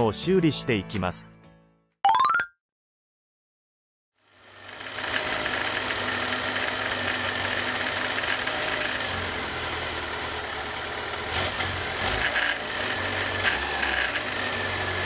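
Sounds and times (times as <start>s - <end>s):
motorcycle engine idling: 4.4s - 12.0s.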